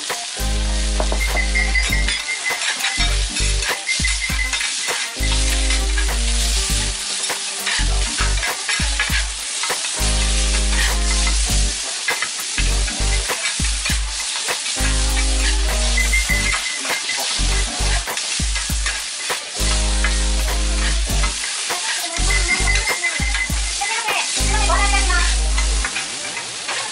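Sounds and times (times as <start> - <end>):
background music with bass: 0.0 - 2.2, 3.0 - 4.6, 5.2 - 9.4, 10.0 - 11.8, 12.6 - 14.2, 14.8 - 16.7, 17.3 - 19.0, 19.6 - 21.4, 22.2 - 23.7, 24.4 - 25.9
food sizzling on a griddle: 0.0 - 26.9.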